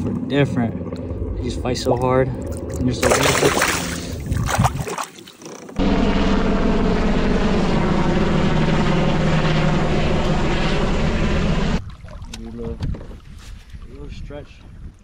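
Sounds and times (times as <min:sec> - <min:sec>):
helicopter flying overhead: 0:00.0 - 0:04.3, 0:05.8 - 0:11.8.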